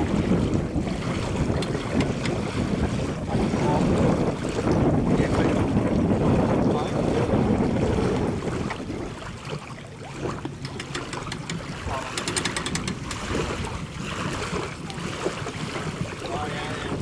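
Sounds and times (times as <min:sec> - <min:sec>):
lapping water: 0:00.0 - 0:17.0
wind buffeting microphone: 0:00.0 - 0:17.0
hand winch ratcheting clicks: 0:10.6 - 0:11.6, 0:12.2 - 0:13.2.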